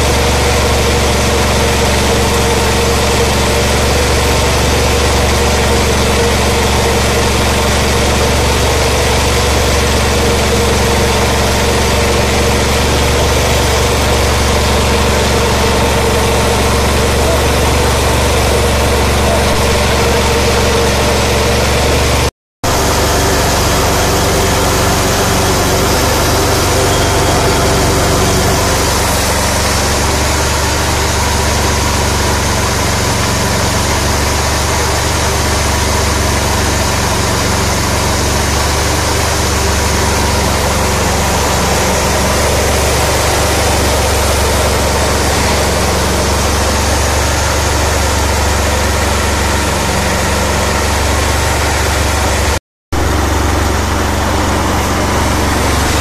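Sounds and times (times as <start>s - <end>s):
huller hissing: 0.0s - 56.0s
small engine running: 0.0s - 56.0s.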